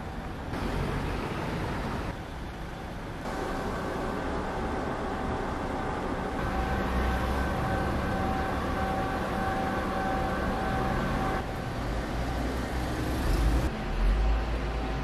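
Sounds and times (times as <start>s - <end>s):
low street rumble: 0.0s - 15.0s
humming tone: 6.3s - 11.5s.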